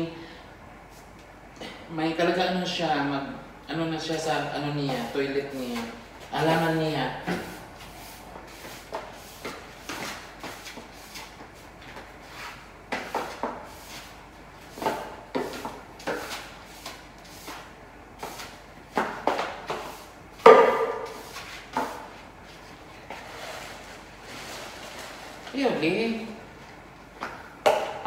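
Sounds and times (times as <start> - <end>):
household objects knocking and scraping: 18.2 - 22.1, 27.6 - 28.0.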